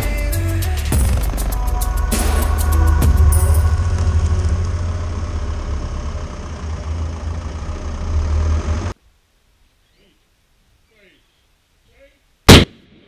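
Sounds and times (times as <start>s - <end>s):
engine rumbling: 0.0s - 9.4s.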